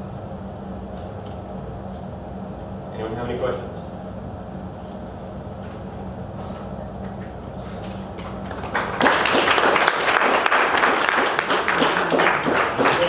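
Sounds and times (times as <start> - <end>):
audience applause: 8.4 - 13.0.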